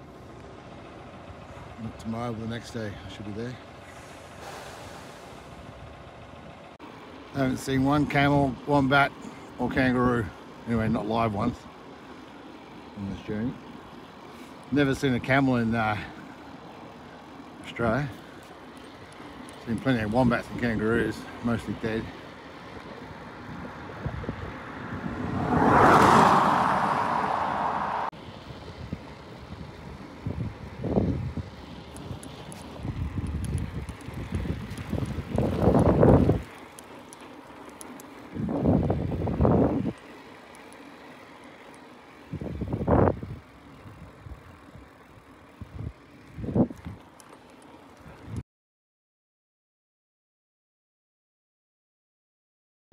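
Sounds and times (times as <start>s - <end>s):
wind rushing over microphone: 23.4s - 31.5s, 32.8s - 36.5s, 38.3s - 40.0s, 42.3s - 44.4s, 45.7s - 47.0s.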